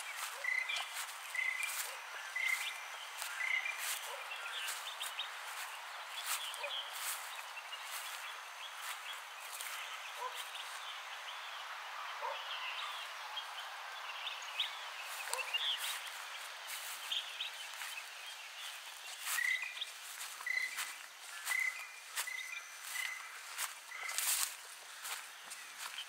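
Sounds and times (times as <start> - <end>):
footsteps on a path: 0.0 - 11.1, 14.6 - 26.0
birds chirping: 0.0 - 26.0.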